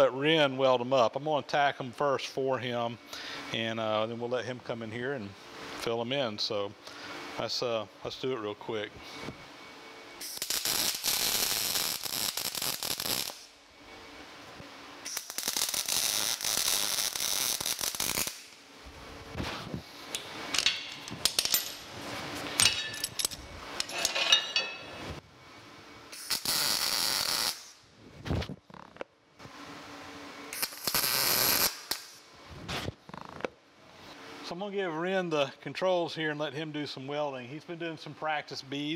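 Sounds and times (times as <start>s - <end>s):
welding arc crackling: 10.2s - 13.6s, 15.0s - 18.7s, 26.1s - 27.8s, 30.5s - 32.2s.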